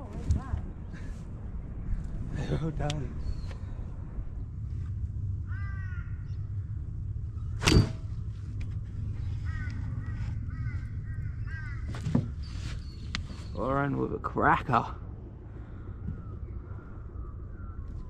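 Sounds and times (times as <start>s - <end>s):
low steady rumble: 0.0s - 18.0s
bird crow-like calls: 5.4s - 6.8s, 9.1s - 13.6s, 16.0s - 18.0s.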